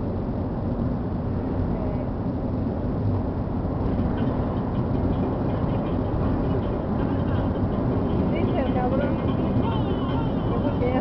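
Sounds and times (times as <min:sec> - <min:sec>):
car road and engine noise: 0:00.0 - 0:11.0.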